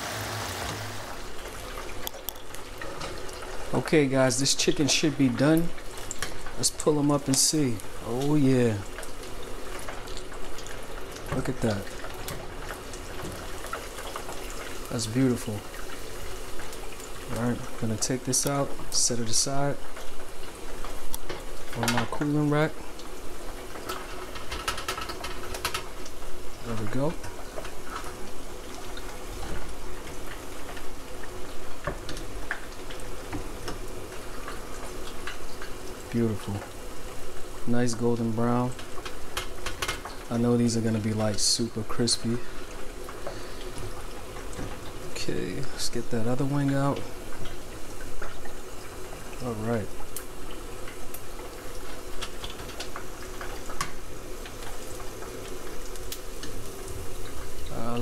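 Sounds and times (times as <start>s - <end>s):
chicken frying in oil: 0.0s - 58.0s.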